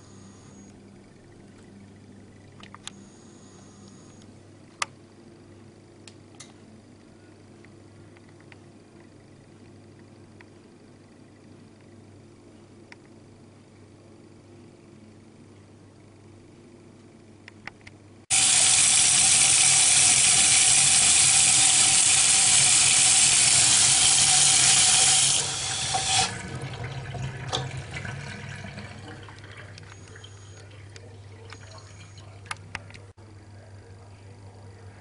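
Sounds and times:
water running hard: 18.3 - 29.8.

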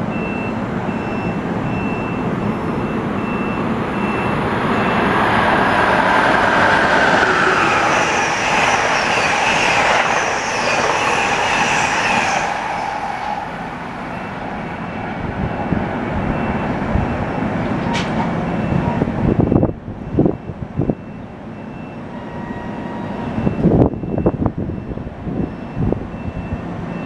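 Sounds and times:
train wheels rushing on rail: 2.4 - 19.8.

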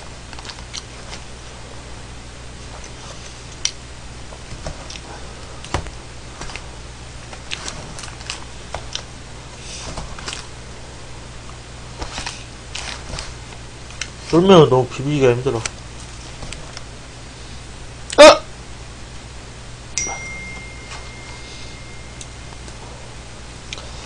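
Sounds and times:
low hum: 15.6 - 24.0.

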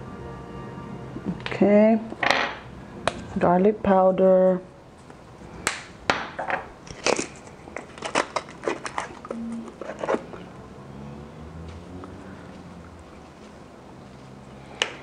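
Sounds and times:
spice containers clicking and rattling: 6.5 - 10.2.

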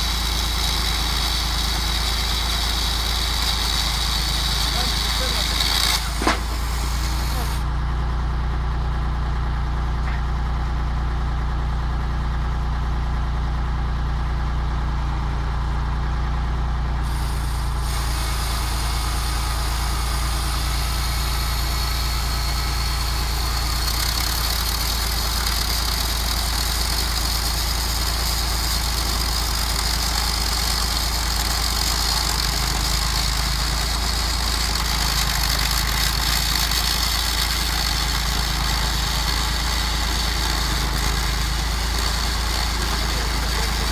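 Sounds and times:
saw chain whining through log: 0.0 - 7.7, 17.1 - 43.9
tractor engine running: 0.0 - 43.9.

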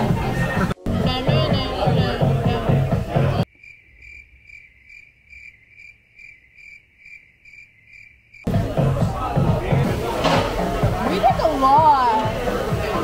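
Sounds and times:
crickets chirping: 3.4 - 8.5.

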